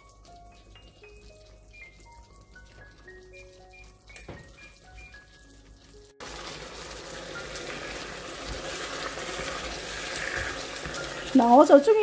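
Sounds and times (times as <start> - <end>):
chopsticks stirring: 0.0 - 12.0
sauce bubbling and sizzling: 0.0 - 12.0
soft background music: 0.0 - 12.0.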